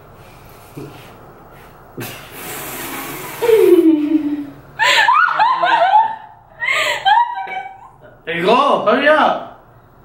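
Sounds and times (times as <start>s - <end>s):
breathy rush of air: 2.0s - 3.7s
high-pitched laughter: 3.4s - 8.0s.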